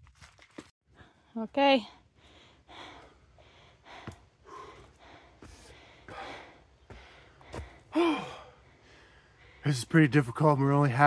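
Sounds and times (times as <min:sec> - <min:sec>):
man breathing hard: 0:02.0 - 0:09.7
man sighing: 0:07.9 - 0:08.6.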